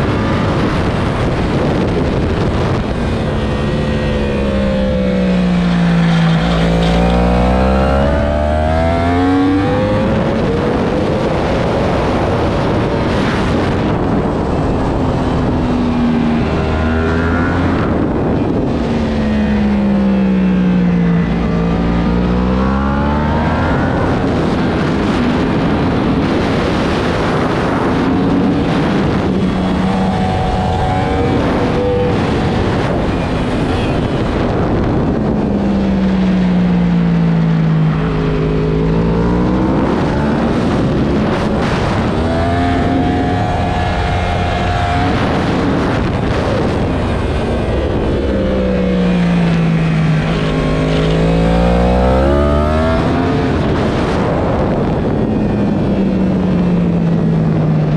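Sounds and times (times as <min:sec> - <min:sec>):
motorcycle engine accelerating: 0:00.0 - 0:57.9
wind noise: 0:00.0 - 0:57.9.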